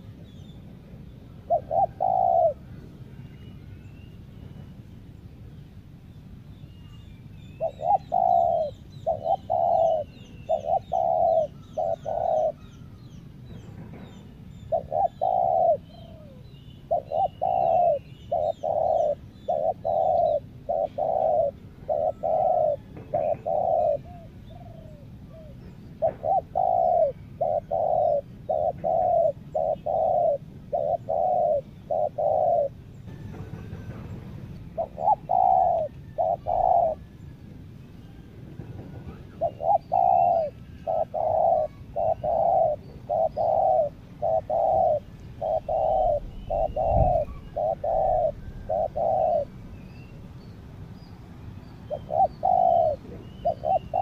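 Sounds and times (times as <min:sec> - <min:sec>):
doves cooing: 0:01.2 - 0:03.6, 0:07.6 - 0:49.8, 0:51.8 - 0:54.0
small birds chirping: 0:06.2 - 0:33.1, 0:39.2 - 0:54.0.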